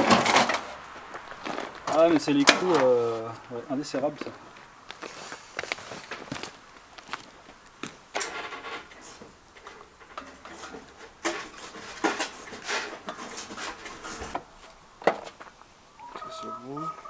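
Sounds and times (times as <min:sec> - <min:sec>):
short metal scraping: 0:08.2 - 0:14.7.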